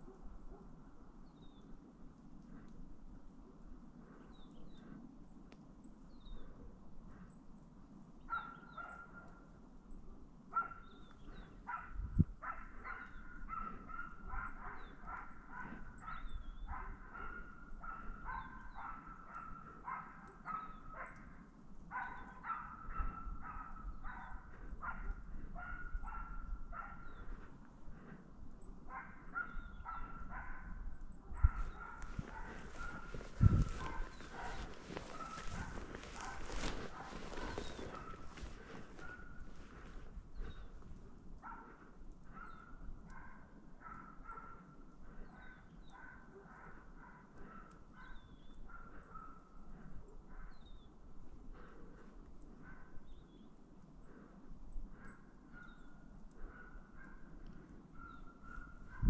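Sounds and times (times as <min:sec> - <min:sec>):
dog barking: 0:00.0 - 0:00.8, 0:08.3 - 0:09.5, 0:10.5 - 0:28.2, 0:28.8 - 0:40.7, 0:41.4 - 0:50.7, 0:51.6 - 0:53.1, 0:55.0 - 0:59.0.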